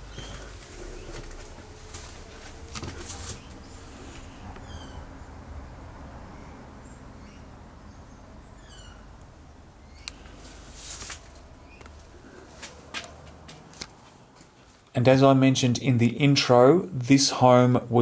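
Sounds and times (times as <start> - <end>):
footsteps on debris: 0.0 - 3.6, 10.3 - 14.8
birds chirping: 0.0 - 13.2.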